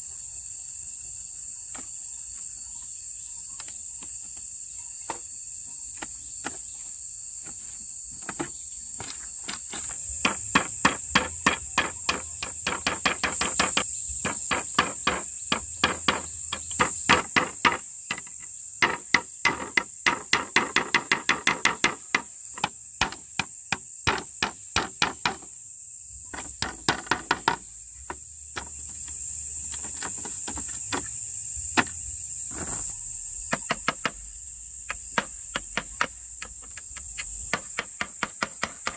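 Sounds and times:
high-pitched insect drone: 0.0 - 38.9
tool knocking on wood: 9.7 - 25.5, 26.3 - 29.1, 31.8 - 32.0, 33.5 - 34.2, 34.9 - 38.9.

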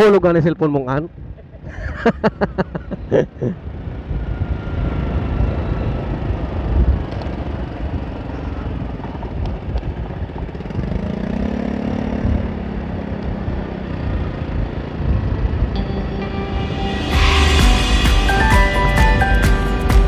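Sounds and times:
engine hum: 1.1 - 20.0
wind rumble on microphone: 3.0 - 15.8
scooter engine running: 3.6 - 20.0.

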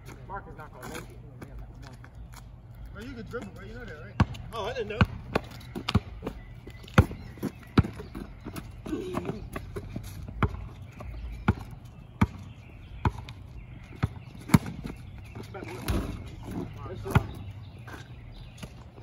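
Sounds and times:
basketball bouncing: 4.2 - 18.8.

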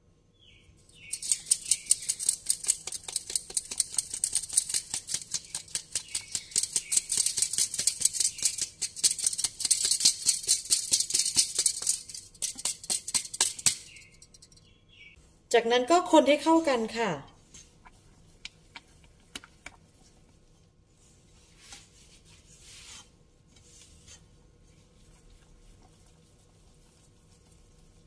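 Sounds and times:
flour sieve rattling: 1.0 - 14.6.

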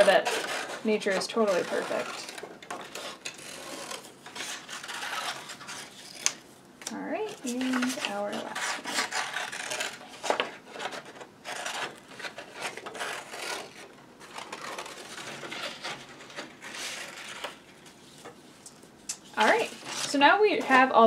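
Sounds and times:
paper rustling: 0.0 - 6.4, 7.4 - 18.5.

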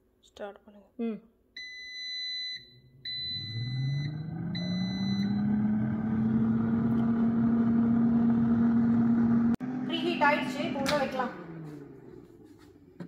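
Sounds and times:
long electronic beeps: 1.6 - 5.8
air fryer fan motor hum: 3.0 - 13.0.

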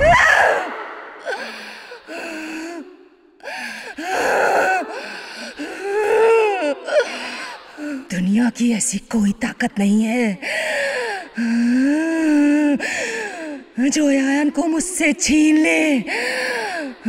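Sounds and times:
woman's breathy moans: 0.0 - 8.1, 10.4 - 13.8, 16.1 - 17.0.

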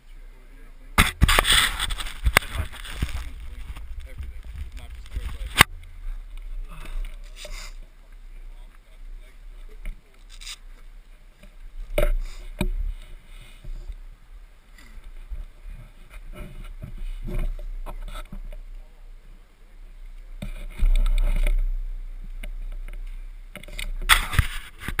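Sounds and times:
camera being handled: 1.0 - 5.7, 23.6 - 25.0
wind rumble on microphone: 1.0 - 7.4.

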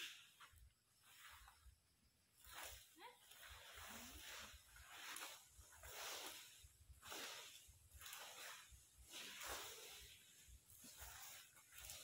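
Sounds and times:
brooms sweeping dry leaves: 0.0 - 12.0.

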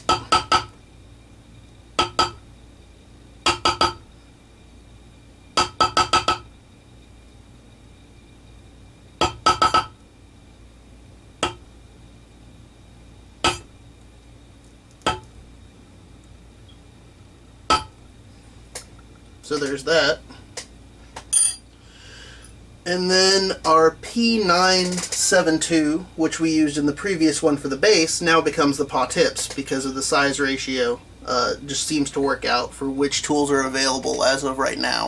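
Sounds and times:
mallet tapping metal leather stamp: 13.5 - 13.7.

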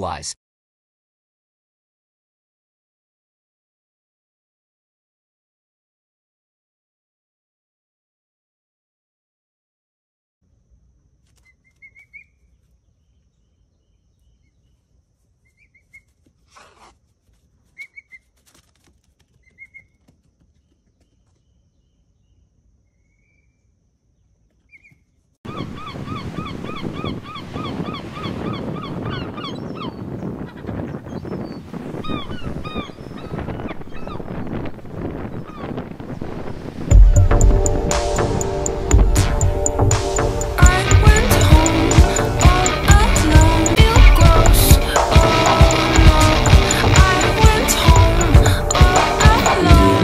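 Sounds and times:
faint bird chirps: 11.3 - 16.9, 17.6 - 18.3, 19.4 - 34.3
birds honking chorus: 25.5 - 34.4.

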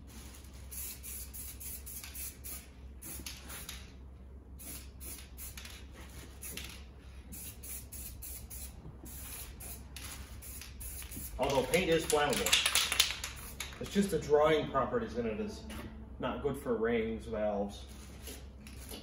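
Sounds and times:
spray can hissing: 0.6 - 3.8, 4.6 - 11.8.

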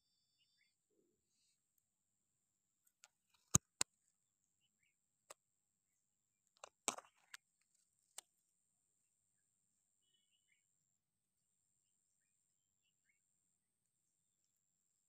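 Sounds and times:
sharp clicks and crackles: 2.9 - 3.9, 6.6 - 7.4.

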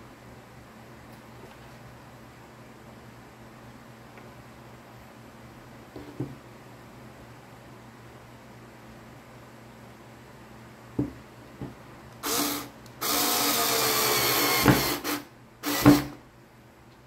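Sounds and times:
electric screwdriver driving screw: 12.2 - 16.2.

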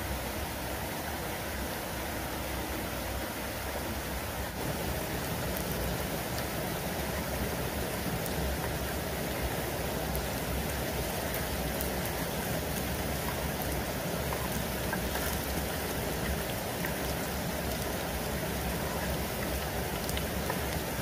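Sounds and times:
fritters sizzling in hot oil: 4.6 - 21.0.

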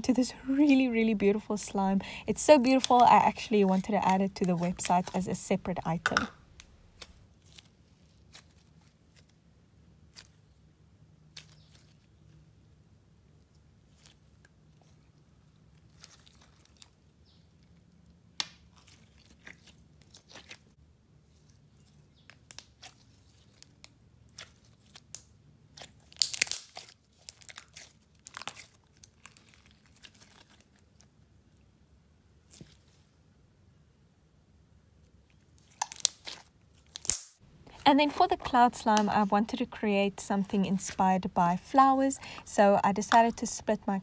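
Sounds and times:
slime with beads crunching: 0.0 - 9.3, 15.8 - 17.0, 18.5 - 31.0, 35.6 - 44.0.

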